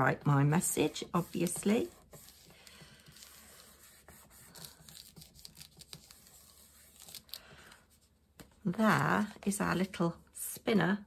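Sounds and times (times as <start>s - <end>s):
card stock rustling and rubbing: 0.5s - 8.5s.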